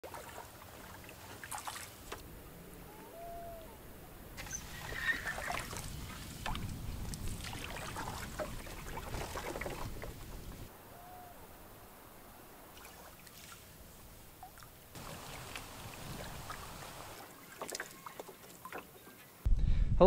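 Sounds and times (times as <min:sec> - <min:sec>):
paddle drips and splashes: 0:00.0 - 0:02.2, 0:04.4 - 0:10.7, 0:12.6 - 0:19.2
water trickling and sloshing: 0:00.0 - 0:03.8, 0:04.4 - 0:10.7, 0:11.8 - 0:19.4.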